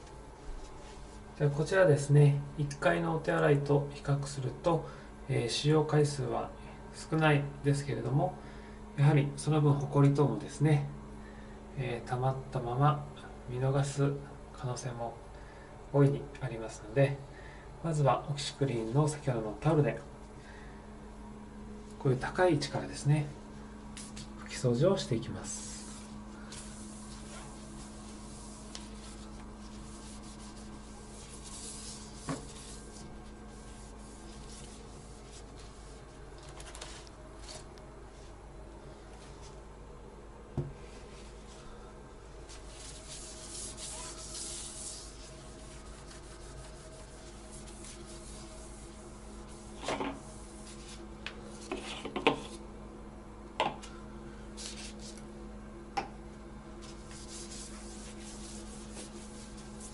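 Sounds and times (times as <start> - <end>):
steady low hum: 0.0 - 59.9
towel wiping a ledge: 25.4 - 37.6, 42.4 - 52.6, 56.8 - 59.9.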